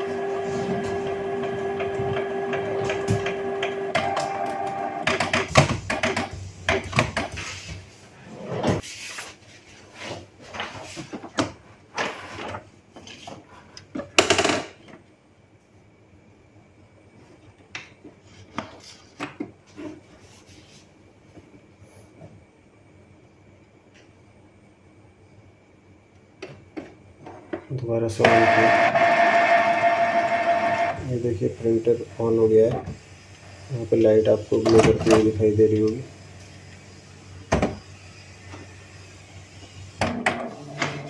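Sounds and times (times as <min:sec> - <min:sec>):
printer mechanism humming: 0:00.0 - 0:07.4, 0:28.0 - 0:41.0.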